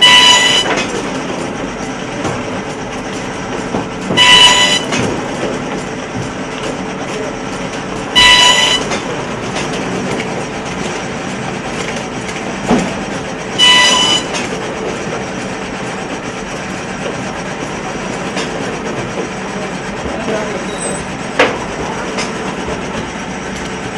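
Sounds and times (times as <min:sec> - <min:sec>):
high-pitched machine whine: 0:00.0 - 0:01.3, 0:04.1 - 0:05.2, 0:08.1 - 0:09.1, 0:13.3 - 0:14.8, 0:20.1 - 0:23.9
binding machine running: 0:00.0 - 0:23.9.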